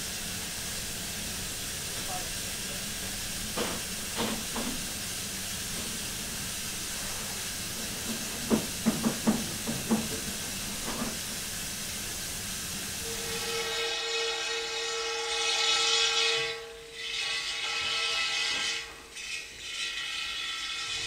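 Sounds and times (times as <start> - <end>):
hiss of escaping steam: 0.0 - 13.8.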